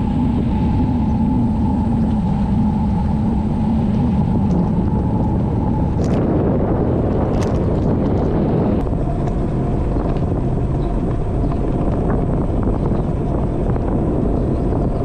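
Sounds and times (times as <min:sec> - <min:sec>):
wind rush on microphone: 0:00.0 - 0:15.0
faint rattles and ticks: 0:07.2 - 0:15.0.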